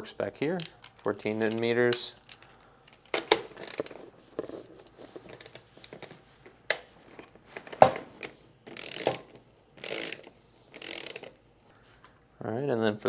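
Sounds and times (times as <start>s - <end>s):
wrench clicks and knocks: 0.6s - 4.0s, 8.7s - 11.4s
wrench ratcheting: 0.6s - 4.0s, 5.3s - 6.1s, 8.7s - 11.4s.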